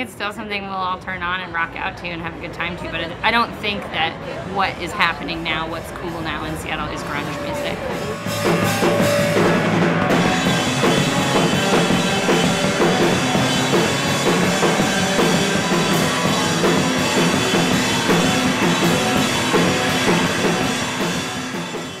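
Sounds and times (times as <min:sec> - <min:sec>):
driving drum kit: 0:06.3 - 0:22.0
electric guitar: 0:06.7 - 0:22.0
rock band playing: 0:07.0 - 0:22.0.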